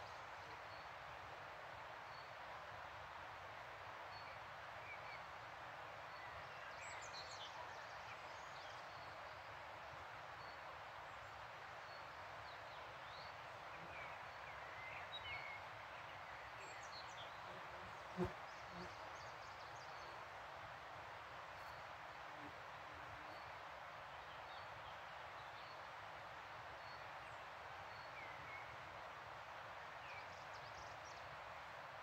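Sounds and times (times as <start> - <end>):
songbird chirps: 10.4 - 20.3.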